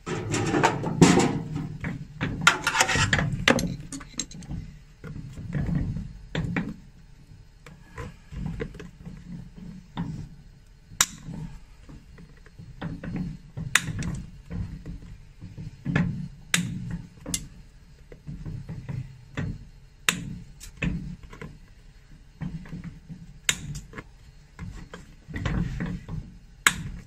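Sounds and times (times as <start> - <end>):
rustling and scraping: 0.0 - 6.0.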